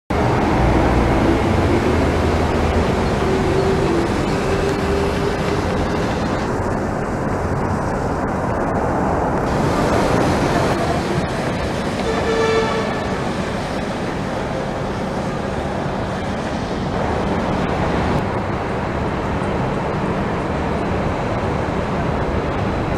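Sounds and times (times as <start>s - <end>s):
monorail train rumble: 0.1s - 22.9s
street traffic: 0.1s - 22.9s.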